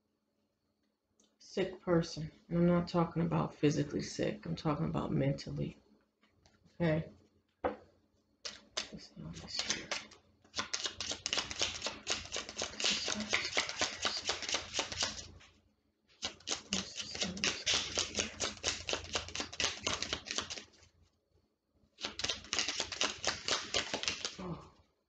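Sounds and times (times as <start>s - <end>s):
cards being shuffled: 8.4s - 20.9s, 22.0s - 24.4s.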